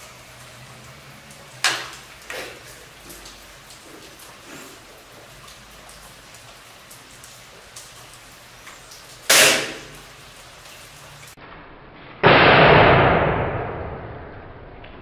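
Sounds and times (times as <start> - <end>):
rain patter: 0.0 - 11.4.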